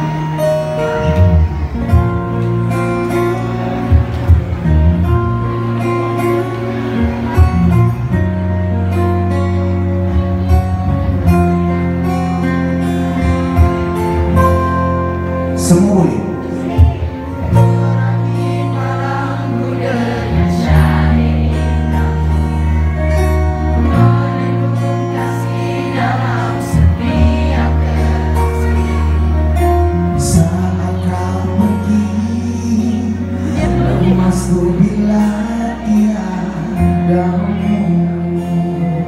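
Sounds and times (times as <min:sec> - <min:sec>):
strummed acoustic guitars: 0:00.0 - 0:39.0
man singing through microphone: 0:15.5 - 0:39.0.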